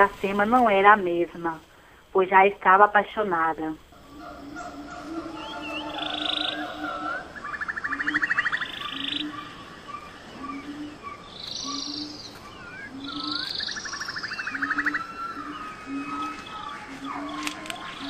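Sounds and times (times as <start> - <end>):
high chirps: 4.0 - 18.0.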